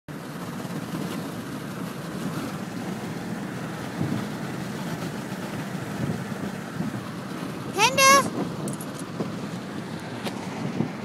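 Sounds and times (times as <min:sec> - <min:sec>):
car road and engine rumble: 0:00.1 - 0:11.0.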